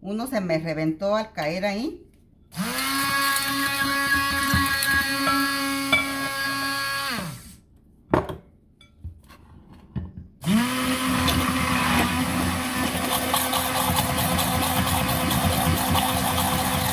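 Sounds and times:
immersion blender motor whirring: 2.6s - 7.6s, 10.4s - 16.9s.

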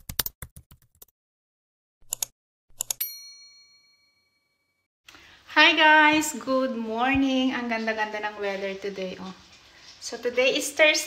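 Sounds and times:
bright bell ding: 3.0s - 4.5s.

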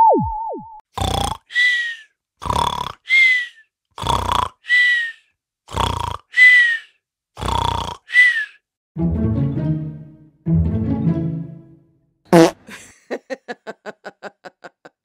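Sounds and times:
person snoring: 1.0s - 3.4s, 4.0s - 5.0s, 5.7s - 6.7s, 7.4s - 8.4s
high whistle while snoring: 3.1s - 3.5s, 4.7s - 5.2s, 6.4s - 6.8s, 7.8s - 8.5s.

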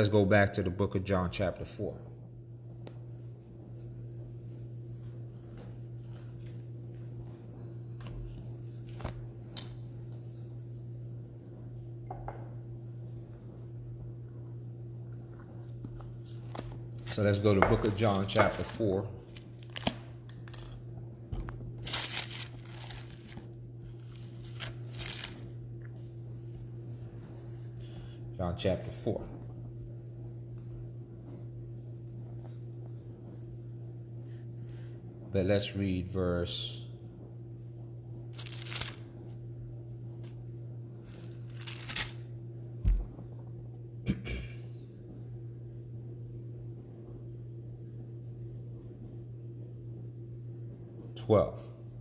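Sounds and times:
faint steady hum: 0.0s - 52.0s
thin pages rustling: 8.7s - 9.3s, 21.8s - 25.5s, 38.4s - 39.0s, 41.0s - 42.2s.

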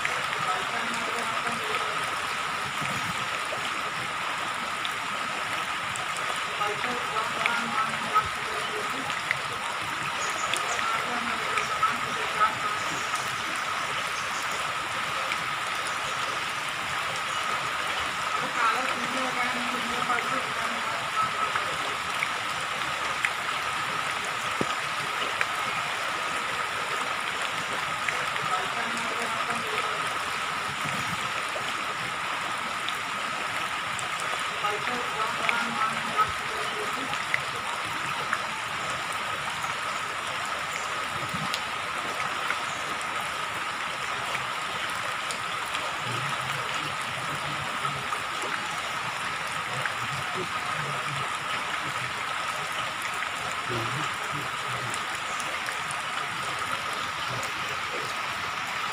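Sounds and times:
rain on shallow water: 0.0s - 58.9s
drip ticks: 21.0s - 25.6s.

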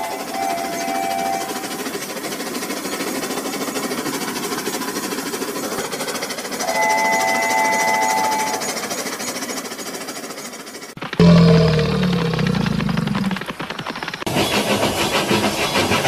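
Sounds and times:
toy train motor buzzing clatter: 0.0s - 16.0s.

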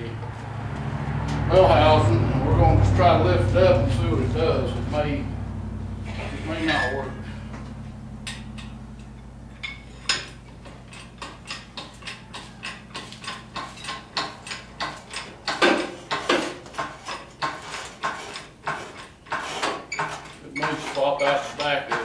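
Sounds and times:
engine hoist clicking: 6.1s - 22.0s.

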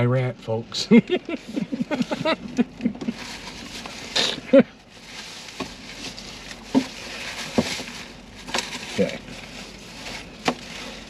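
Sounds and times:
paper and cardboard rustling: 1.4s - 11.0s.

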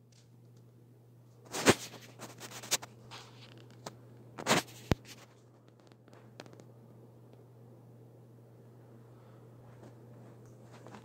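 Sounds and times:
ceiling fan motor hum: 0.0s - 11.0s
loud rustling scrapes: 1.4s - 3.6s.

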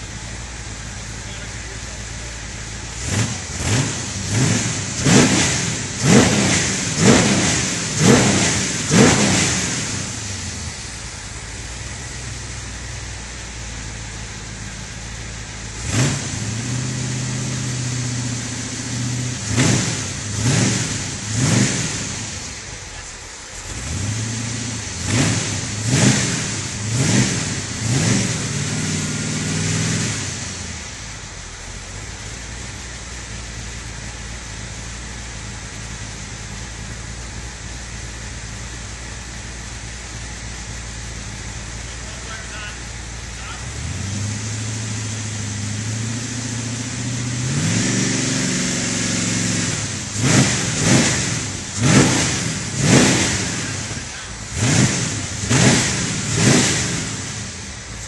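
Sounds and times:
buggy engine revving: 0.0s - 58.0s.

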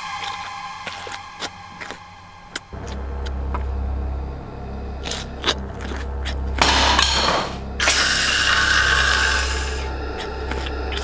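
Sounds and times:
steady low hum: 0.0s - 11.0s
noisy scraping: 0.3s - 11.0s.

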